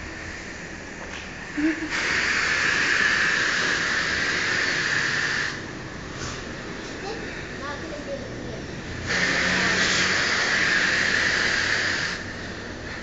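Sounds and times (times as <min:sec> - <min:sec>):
high-pressure water jet hissing: 0:01.6 - 0:05.7, 0:09.0 - 0:13.0.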